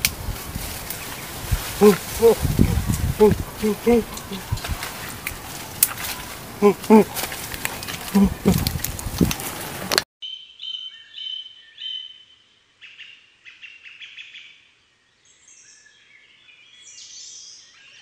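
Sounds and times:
birds chirping and calling: 0.6s - 9.4s.

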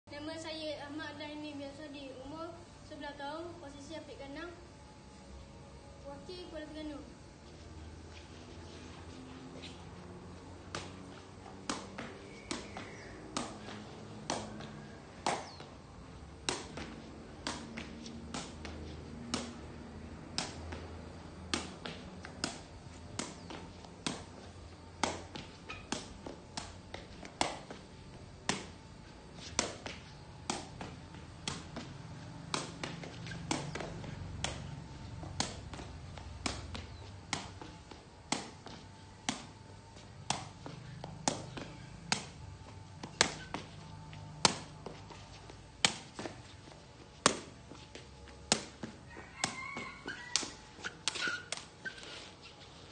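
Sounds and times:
ball kicked with sharp taps: 10.6s - 28.8s, 29.4s - 51.7s.

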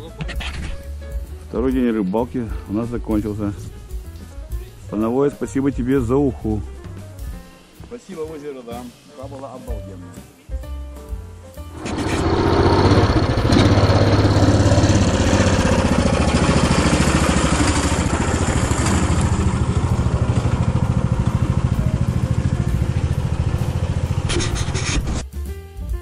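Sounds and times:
vehicle engine pulsing: 11.8s - 25.2s.

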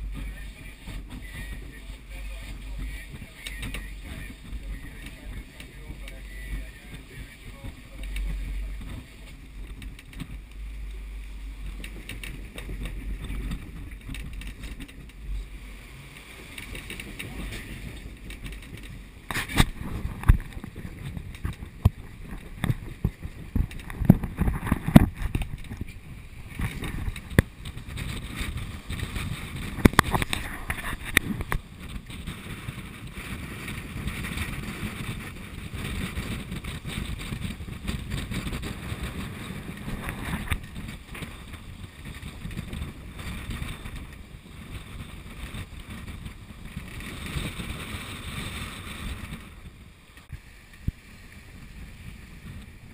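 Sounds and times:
wind buffeting microphone: 0.0s - 52.9s.

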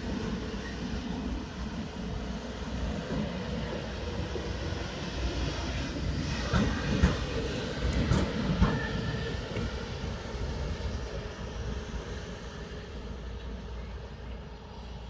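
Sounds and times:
electric locomotive rumbling past: 0.0s - 15.0s.

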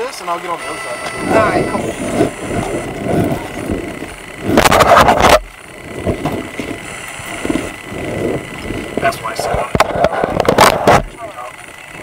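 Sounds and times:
camera rubbing against clothing: 4.4s - 5.4s.

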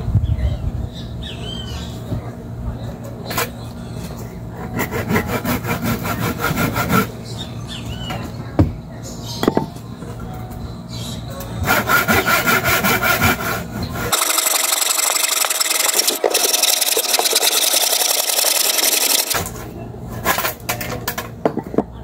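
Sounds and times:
handsaw cutting wood: 4.7s - 7.1s, 11.7s - 19.4s.

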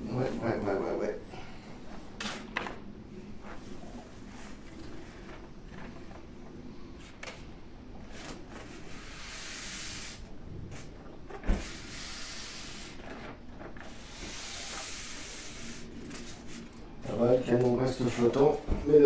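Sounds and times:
hiss: 8.8s - 10.9s, 11.5s - 13.1s, 13.8s - 16.4s.

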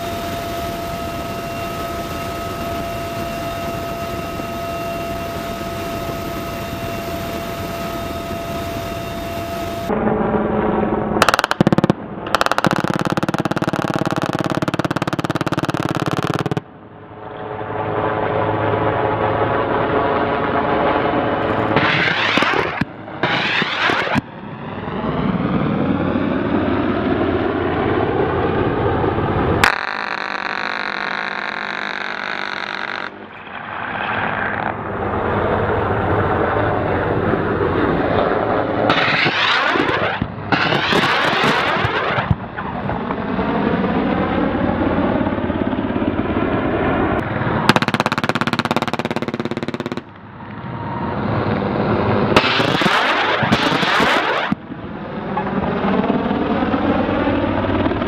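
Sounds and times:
helicopter engine and rotor: 0.0s - 58.0s
gunfire bursts: 11.2s - 16.7s, 21.7s - 24.2s, 38.9s - 42.4s, 47.7s - 50.2s, 52.4s - 54.6s.

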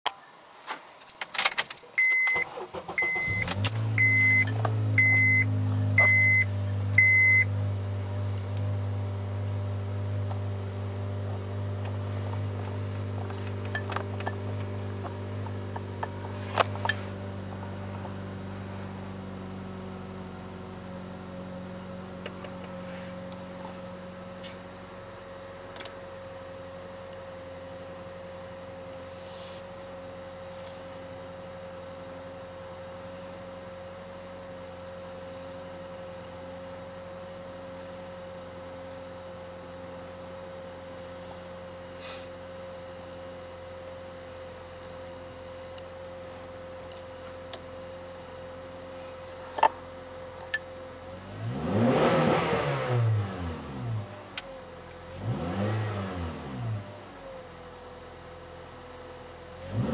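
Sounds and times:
car keys jangling: 1.0s - 2.4s, 3.4s - 4.0s
car engine starting and idling: 1.1s - 59.9s
dashboard chime beeping: 3.0s - 7.5s.

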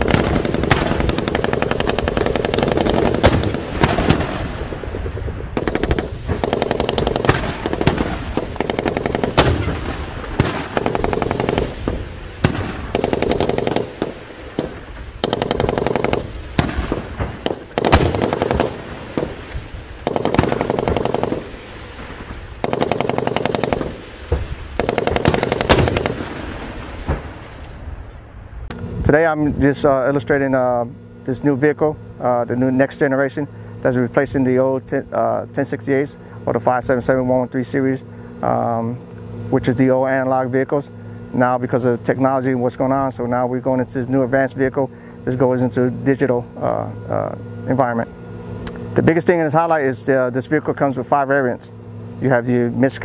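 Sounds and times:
machine-gun fire: 0.0s - 27.5s.

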